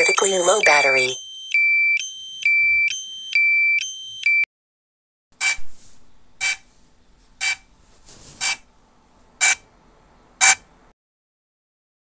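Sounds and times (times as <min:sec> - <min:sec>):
short alarm beeps: 0:00.0 - 0:04.5.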